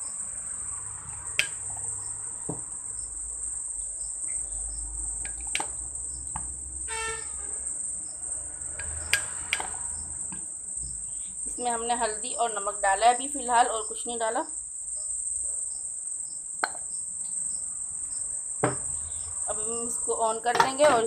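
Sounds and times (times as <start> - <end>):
spoon clicking against pan: 1.4 - 1.6, 8.8 - 9.8.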